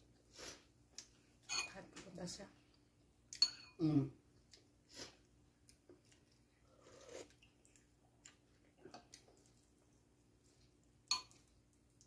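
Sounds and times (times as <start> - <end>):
spoon clinking on ceramic bowl: 3.4 - 3.8, 11.1 - 11.4
faint chewing: 4.3 - 12.0.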